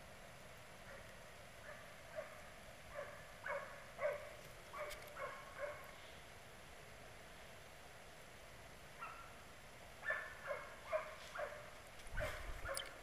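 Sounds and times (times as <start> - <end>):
distant dogs barking: 0.8 - 6.0, 8.9 - 13.0.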